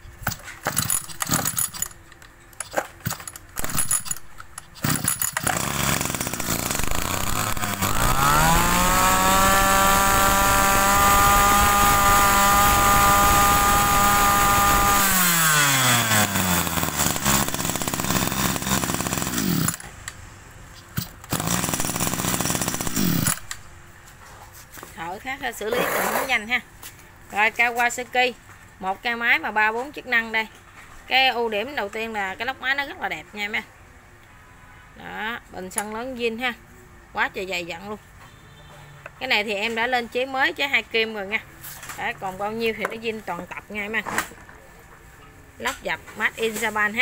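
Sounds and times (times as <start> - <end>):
starter cord pulls: 0.2 - 10.0
brush-cutter engine idling and revving: 0.3 - 2.0, 2.6 - 20.0, 20.8 - 23.6.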